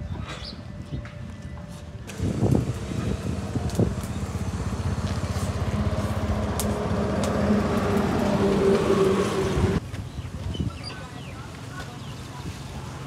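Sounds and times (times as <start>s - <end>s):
small vehicle engine running: 2.1s - 9.8s.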